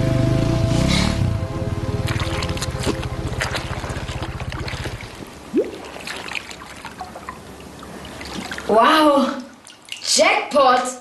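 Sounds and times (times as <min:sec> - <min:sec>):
low rapid throbbing: 0:00.0 - 0:05.4
water splashing in toilet bowl: 0:02.1 - 0:08.8.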